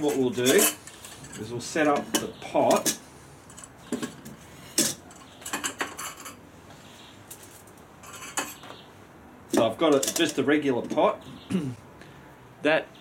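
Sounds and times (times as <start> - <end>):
metal pot clinking and clattering: 8.0 - 8.6.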